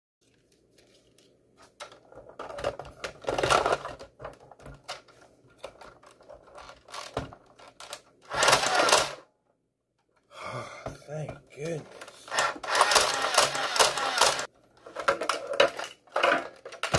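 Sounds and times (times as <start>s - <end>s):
plastic clicks and clatter: 1.6s - 9.0s, 11.8s - 16.9s.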